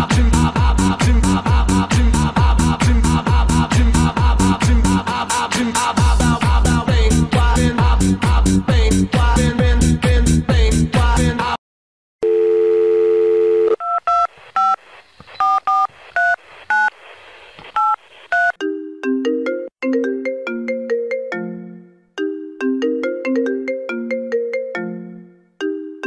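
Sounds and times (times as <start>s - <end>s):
telephone line tone: 12.2s - 14.8s
ringtone melody: 18.6s - 26.0s.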